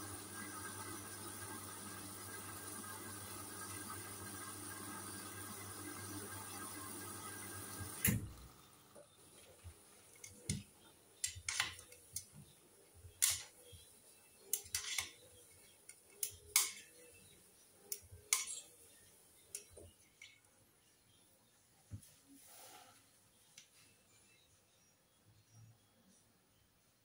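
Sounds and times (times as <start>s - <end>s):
washing machine running: 0.0s - 11.6s.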